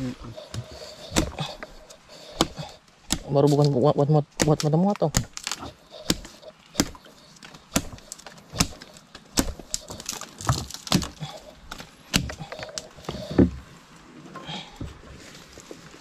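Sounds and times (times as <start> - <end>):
blade hacking at a root: 0.4 - 13.5.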